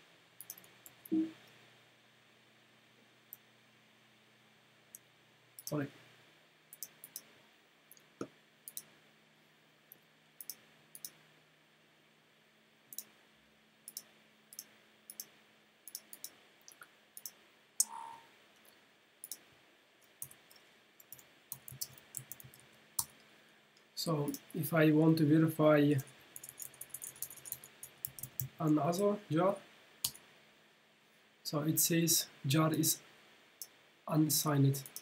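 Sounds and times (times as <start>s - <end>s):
computer mouse clicks: 0.4s - 1.6s, 5.6s - 5.8s, 6.7s - 7.3s, 7.9s - 8.9s, 9.9s - 11.2s, 12.9s - 13.1s, 13.9s - 15.3s, 15.9s - 18.2s, 20.0s - 23.1s, 26.4s - 28.8s, 34.8s - 35.0s.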